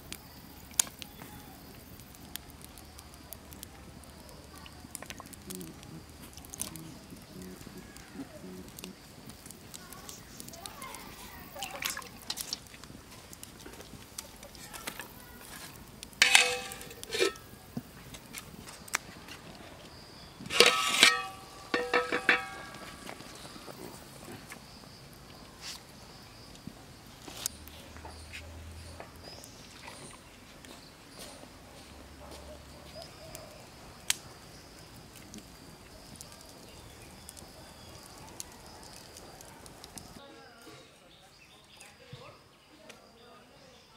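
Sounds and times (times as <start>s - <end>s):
wood fire crackling: 0.0s - 40.2s
metal lid clanking on a pot: 16.2s - 17.4s, 20.5s - 22.9s.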